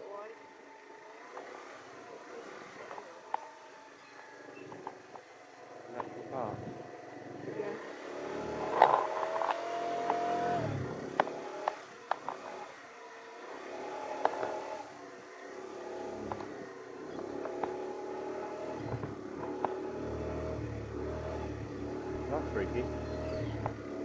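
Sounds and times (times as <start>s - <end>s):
scooter engine running: 0.0s - 24.0s
sharp clicks and rattles: 8.6s - 10.2s, 16.2s - 17.9s.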